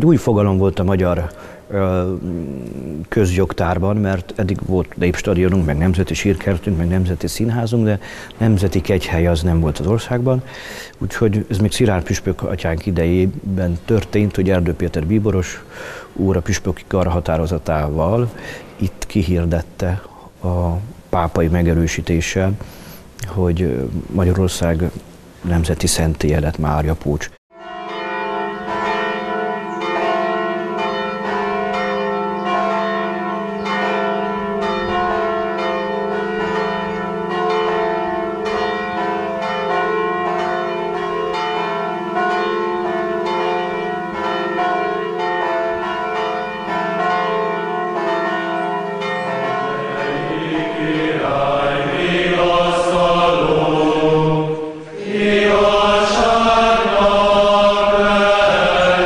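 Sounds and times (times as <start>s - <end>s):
church bells pealing: 0.0s - 20.1s, 27.6s - 59.0s
choir chanting: 49.8s - 59.0s.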